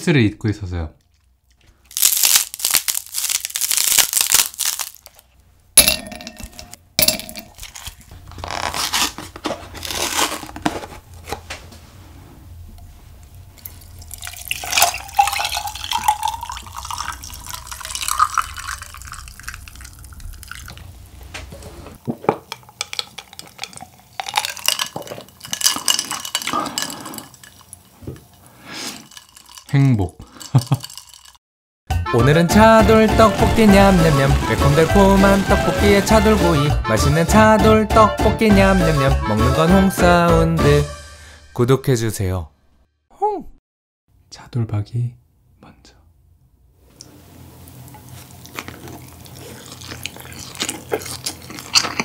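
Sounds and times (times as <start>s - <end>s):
handling noises: 1.9s - 13.4s
drink pouring into a glass: 13.6s - 20.8s, 22.4s - 28.3s, 29.0s - 31.4s.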